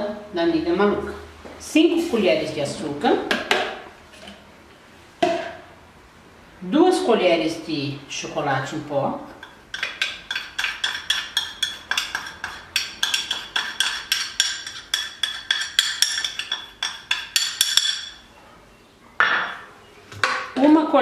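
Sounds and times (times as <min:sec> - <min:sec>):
metal spoon clinking on glass: 0:09.4 - 0:18.2.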